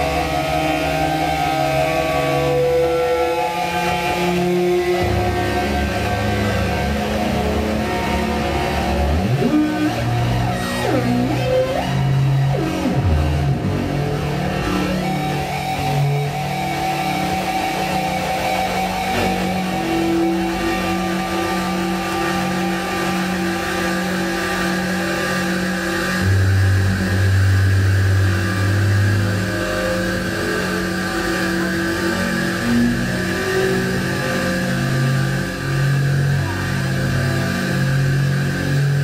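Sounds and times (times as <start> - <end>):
deep low tone: 0.0 - 16.6
electronic drone tones: 0.0 - 39.0.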